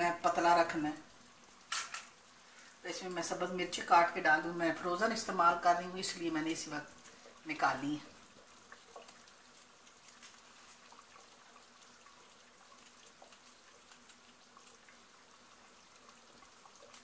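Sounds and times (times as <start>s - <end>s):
faint small ticks: 8.4s - 15.0s.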